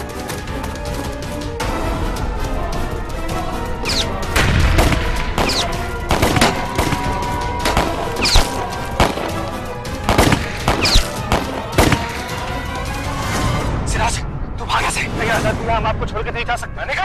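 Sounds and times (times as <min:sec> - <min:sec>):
dramatic orchestral music: 0:00.0 - 0:17.0
bullet whizzes: 0:03.8 - 0:07.0, 0:07.7 - 0:09.4, 0:10.1 - 0:12.2
gunshots cracking: 0:03.9 - 0:12.4.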